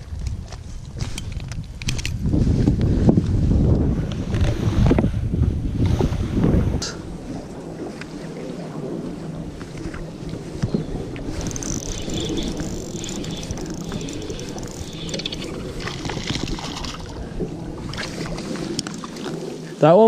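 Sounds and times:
fish splashing: 11.1s - 19.6s
fishing reel ticking: 11.3s - 16.9s.

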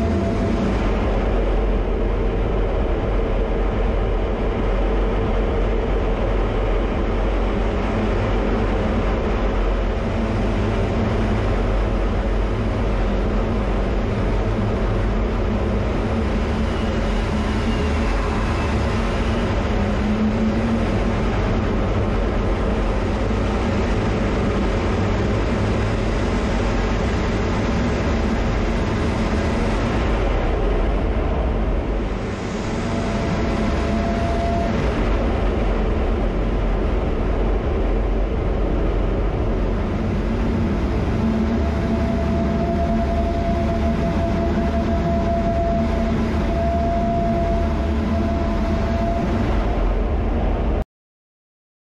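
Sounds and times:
jet engine and rushing air: 0.0s - 50.8s.

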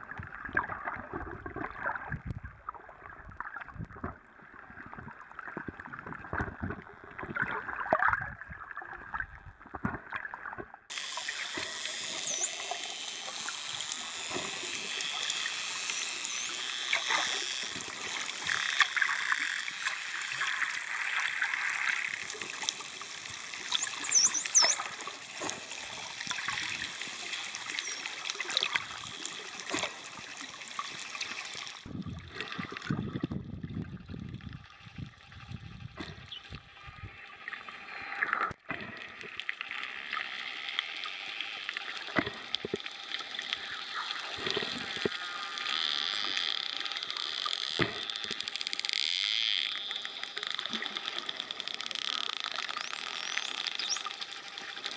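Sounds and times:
water rushing and bubbles: 0.0s - 54.9s
dolphin clicks: 10.9s - 31.9s, 42.1s - 54.9s
dolphin whistles underwater: 12.1s - 12.7s, 23.7s - 25.0s, 27.7s - 28.2s, 52.7s - 54.2s.

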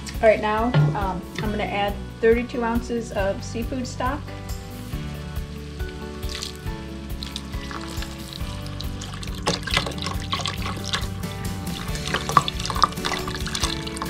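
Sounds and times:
background music: 0.0s - 14.0s
liquid pouring into a pot: 5.7s - 14.0s.

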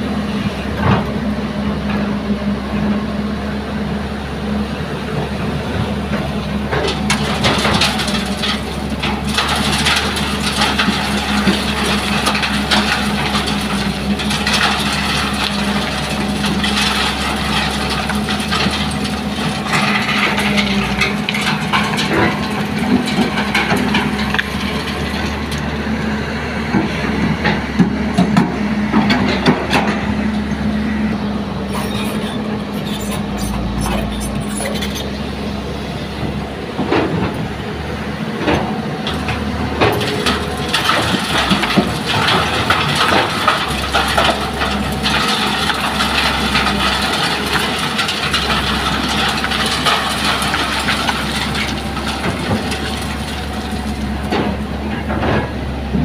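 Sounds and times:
excavator diesel engine running: 0.0s - 56.0s
bucket digging earth: 31.6s - 35.4s, 39.1s - 54.8s
stones clattering on metal: 39.9s - 54.4s.

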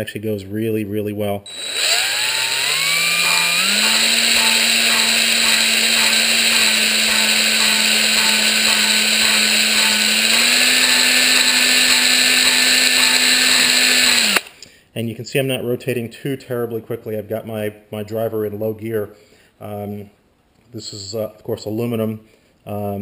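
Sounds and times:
drill motor whine: 1.5s - 14.5s.

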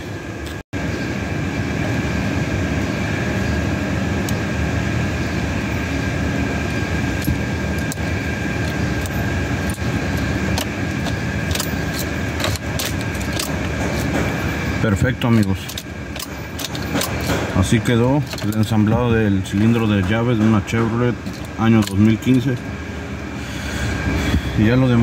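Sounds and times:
steady mechanical hum: 0.0s - 25.0s
keys jangling on ring: 7.2s - 17.5s.

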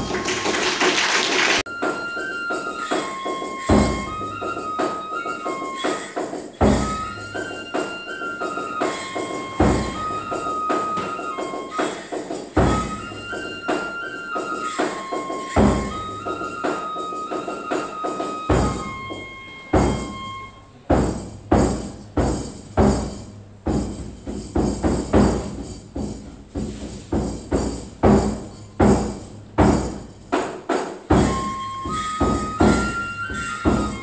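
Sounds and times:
drum strikes: 0.0s - 13.9s, 14.6s - 34.0s
bamboo flute melody: 1.6s - 21.8s, 30.6s - 34.0s.

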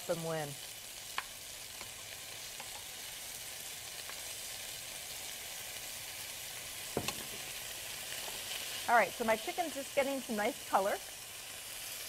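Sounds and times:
chicken sizzling in oil: 0.0s - 12.0s
metal tongs clicking on pan: 1.1s - 2.9s.

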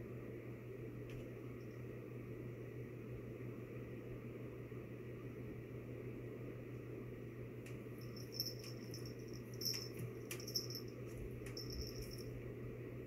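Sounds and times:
low room hum: 0.0s - 13.0s
high thin steady tone: 8.0s - 12.3s.

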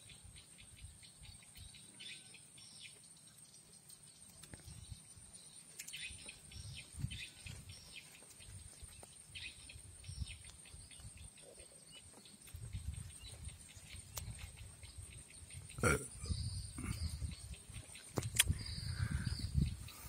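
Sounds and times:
wind rumble on microphone: 6.5s - 7.9s, 8.5s - 11.3s, 12.4s - 20.0s.

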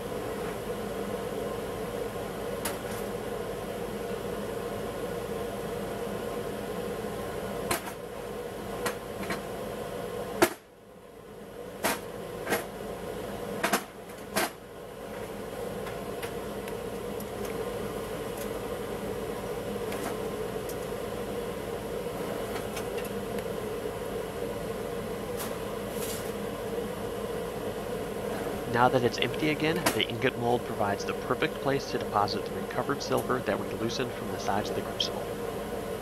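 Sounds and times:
steady mechanical hum: 0.0s - 36.0s.

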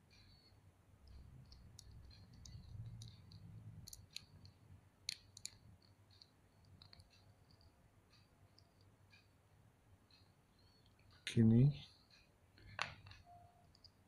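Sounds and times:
plastic parts clicking: 1.4s - 4.3s.

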